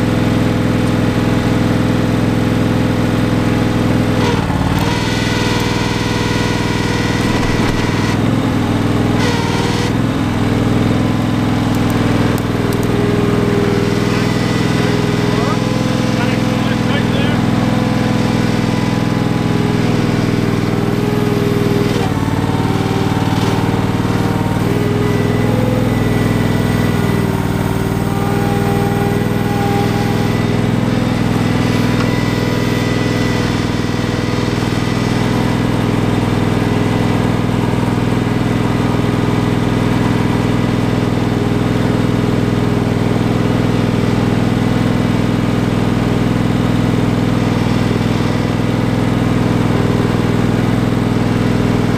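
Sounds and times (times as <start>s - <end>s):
garden tractor engine running: 0.0s - 51.9s
high-pitched whine: 4.4s - 10.0s, 13.0s - 37.8s.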